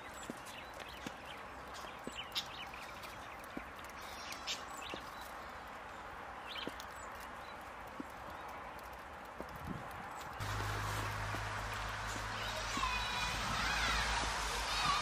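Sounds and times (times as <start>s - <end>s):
twig crackles: 0.0s - 14.4s
outdoor background hiss: 10.0s - 15.0s.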